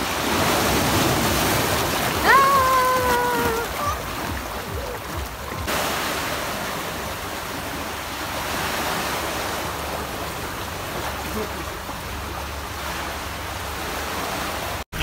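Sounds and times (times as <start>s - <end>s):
waves breaking on rocks: 0.0s - 15.0s.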